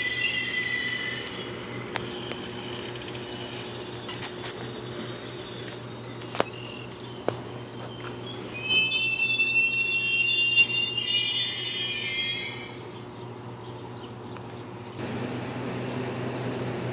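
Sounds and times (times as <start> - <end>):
train wheels squealing: 0.0 - 12.8.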